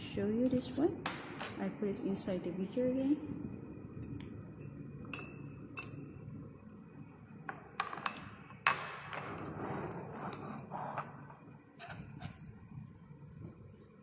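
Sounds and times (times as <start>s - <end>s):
tweezers and beaker clinking: 4.0s - 6.2s.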